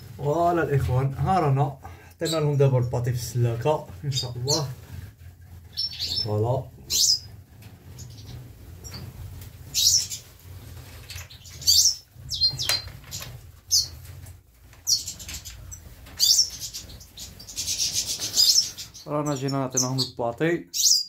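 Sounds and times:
finches chirping: 5.7 - 7.3, 7.9 - 9.0, 9.7 - 10.2, 11.1 - 14.0, 14.8 - 21.0.

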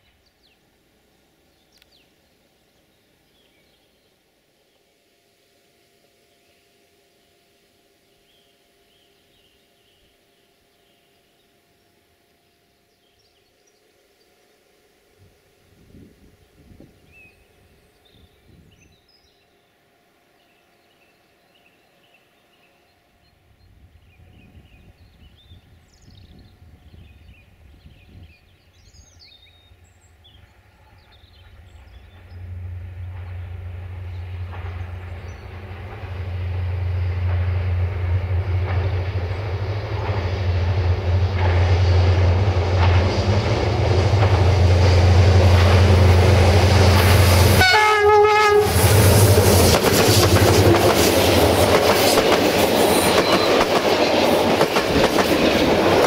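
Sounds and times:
birds chirping: 27.8 - 36.4
wheels clattering on rails: 33.0 - 47.6, 48.9 - 56.0
train horn blast: 43.8 - 50.9.

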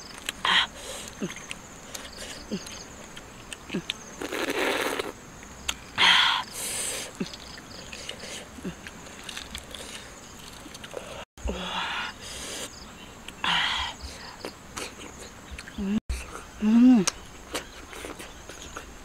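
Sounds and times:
biting and mouth noises: 0.0 - 5.9, 6.8 - 11.2, 14.2 - 19.0
crickets chirring: 0.0 - 15.8.

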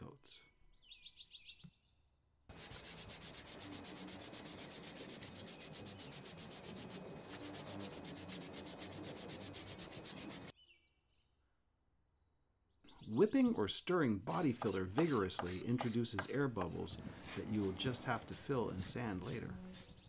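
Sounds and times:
spray paint can hissing: 2.5 - 10.5.

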